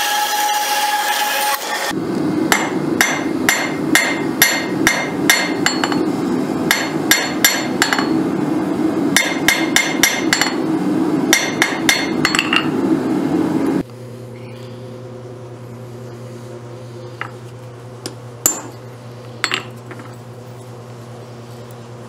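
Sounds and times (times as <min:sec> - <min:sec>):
hammer ringing on anvil: 0:02.5 - 0:06.0, 0:06.7 - 0:08.2, 0:09.2 - 0:10.6, 0:11.3 - 0:12.7, 0:18.4 - 0:18.8.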